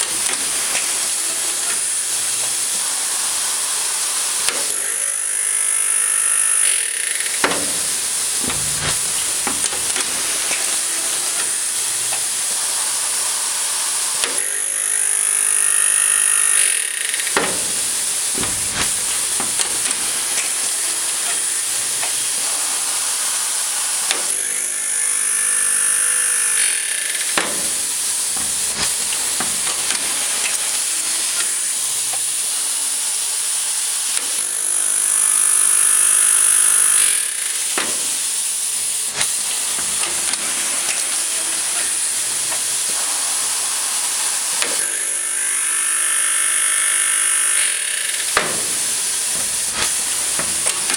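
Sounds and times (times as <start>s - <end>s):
whining hiss: 0.0s - 50.9s
machine clicks and knocks: 7.0s - 12.3s, 17.1s - 22.2s, 27.2s - 30.8s, 48.1s - 50.9s
steady air hiss: 7.4s - 14.4s, 17.3s - 24.2s, 27.4s - 33.4s, 48.3s - 50.9s.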